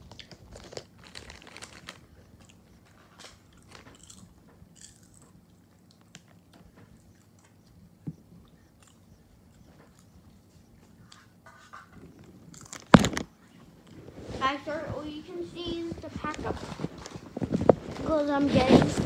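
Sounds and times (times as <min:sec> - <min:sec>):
person chewing popcorn: 0:00.0 - 0:14.1.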